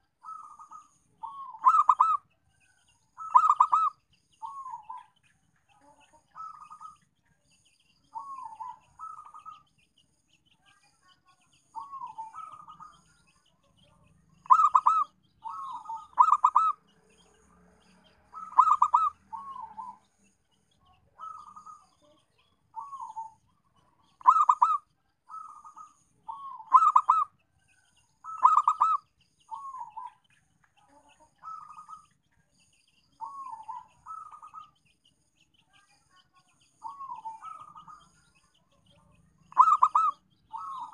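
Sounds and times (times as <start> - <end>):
dove cooing: 0.0 - 2.2, 3.2 - 5.1, 6.4 - 7.0, 8.2 - 9.6, 11.8 - 13.0, 14.4 - 16.8, 18.3 - 20.0, 21.2 - 22.1, 22.8 - 23.4, 24.0 - 27.3, 28.3 - 30.2, 31.4 - 32.0, 33.2 - 34.8, 36.8 - 38.1, 39.4 - 40.9.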